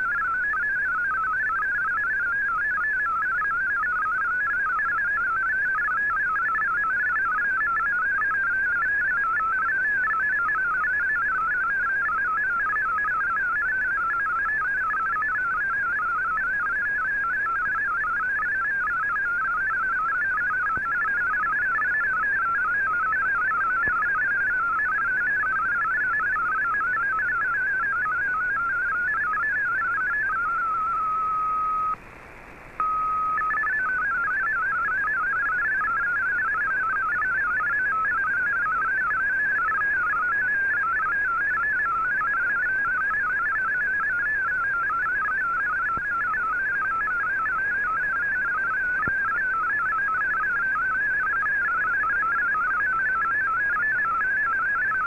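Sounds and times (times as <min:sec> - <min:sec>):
receiver hiss: 0:20.3 - 0:44.7.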